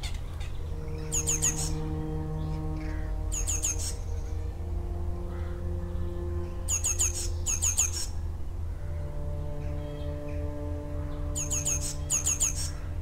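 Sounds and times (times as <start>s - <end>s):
low hum: 0.0s - 13.0s
slow music of held chords: 0.0s - 13.0s
bird chirps: 0.4s - 4.5s, 9.6s - 12.9s.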